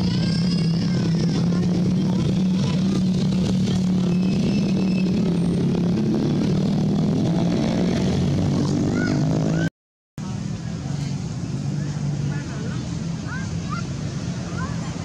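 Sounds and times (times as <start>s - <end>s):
short high rising squeaks: 0.0s - 1.5s, 3.9s - 6.0s
motor engine running: 0.0s - 9.7s.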